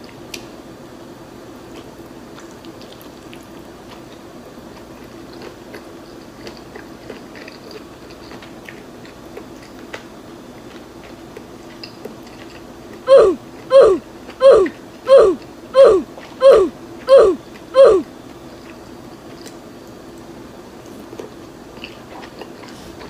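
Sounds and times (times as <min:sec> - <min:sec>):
faint steady hum: 0:00.0 - 0:23.0
close chewing mouth clicks: 0:01.7 - 0:13.0, 0:18.6 - 0:20.3, 0:20.9 - 0:23.0.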